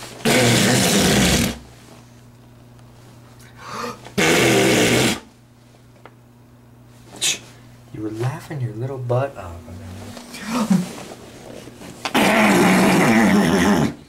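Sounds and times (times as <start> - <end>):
blowing raspberries on skin: 0.2 - 1.6, 4.2 - 5.3, 12.1 - 14.0.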